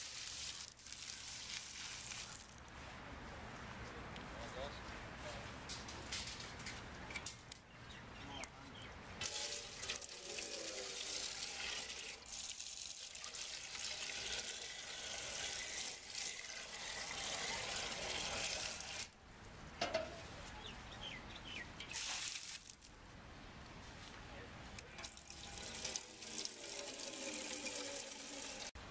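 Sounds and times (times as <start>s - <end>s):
water running from tap: 9.2s - 19.1s, 25.0s - 28.7s.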